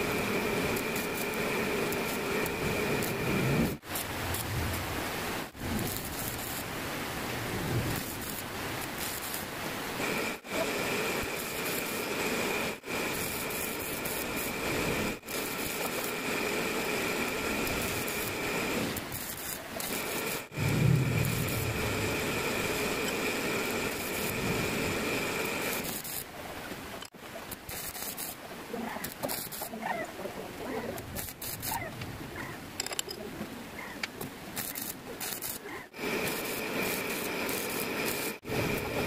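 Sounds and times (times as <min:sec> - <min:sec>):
welding arc crackling: 0:00.0 - 0:26.3, 0:27.0 - 0:29.8, 0:31.0 - 0:31.9, 0:34.4 - 0:39.0.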